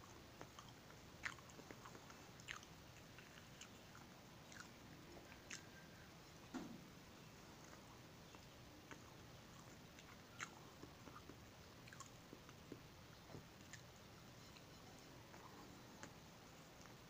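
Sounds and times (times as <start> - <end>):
person chewing: 0.0 - 6.0, 7.6 - 17.0
mouth clicks and smacks: 7.6 - 13.9.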